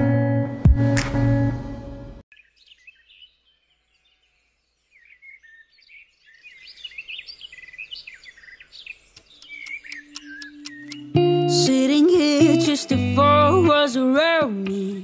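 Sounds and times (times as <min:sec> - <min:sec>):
high-pitched chirping: 0:09.2 - 0:11.6.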